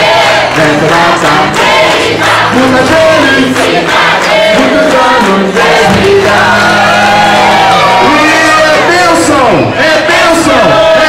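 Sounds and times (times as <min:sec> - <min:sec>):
people clapping: 0:00.0 - 0:09.6
crowd singing together: 0:00.0 - 0:11.0.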